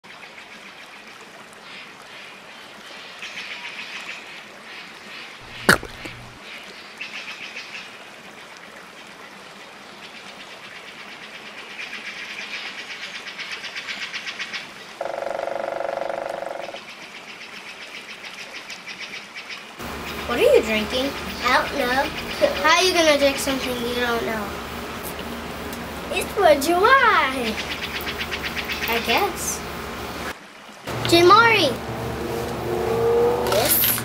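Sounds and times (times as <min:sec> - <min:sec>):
steady low hum: 0:19.8 - 0:30.3.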